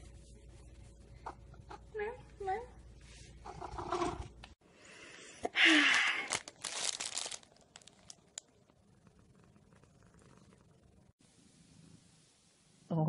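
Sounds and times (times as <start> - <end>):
crinkling and rustling: 6.2 - 8.8.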